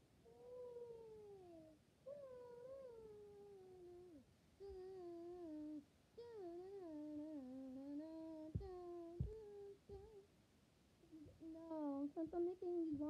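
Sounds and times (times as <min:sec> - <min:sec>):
boy humming: 0:00.0 - 0:10.3, 0:11.0 - 0:13.0
dull thumps: 0:08.5 - 0:10.0.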